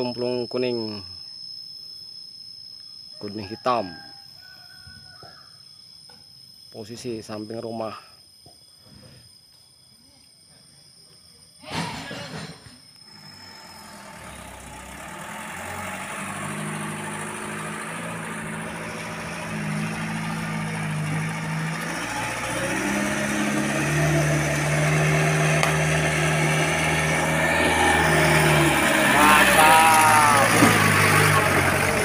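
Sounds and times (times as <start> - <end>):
truck engine at low revs: 12.8 - 32.0.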